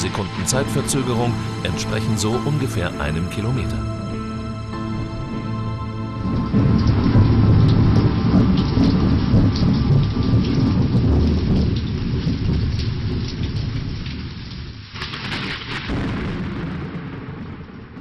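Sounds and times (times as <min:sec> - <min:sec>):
steady rain: 0:00.0 - 0:18.0
thunder rumbling: 0:00.0 - 0:18.0.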